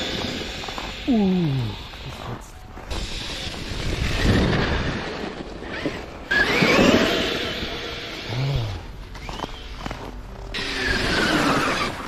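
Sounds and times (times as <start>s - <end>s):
wind noise on microphone: 0.0s - 7.9s
electric motor whining: 0.0s - 12.0s.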